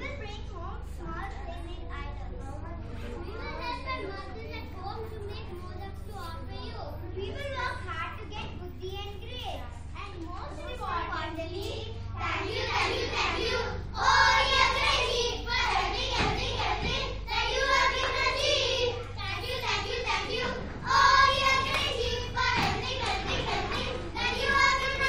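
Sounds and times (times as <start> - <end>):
children singing: 12.2 - 25.0.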